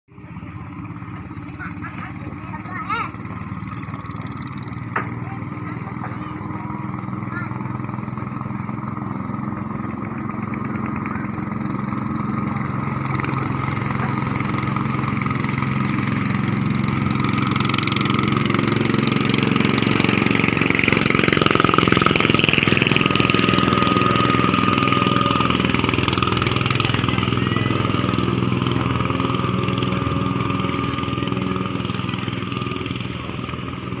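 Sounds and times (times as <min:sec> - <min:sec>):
motorboat engines racing: 0:00.1 - 0:34.0
high whine: 0:06.3 - 0:34.0.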